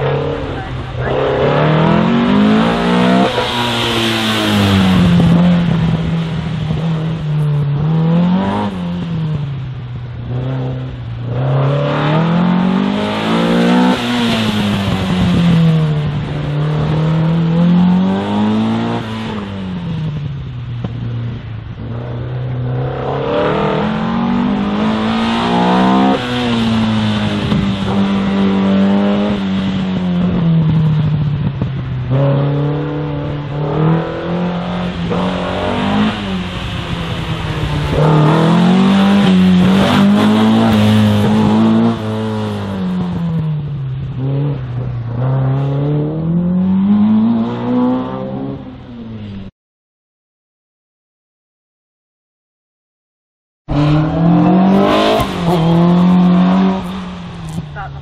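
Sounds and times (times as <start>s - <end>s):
car engine revving: 0.0s - 49.5s, 53.7s - 58.0s.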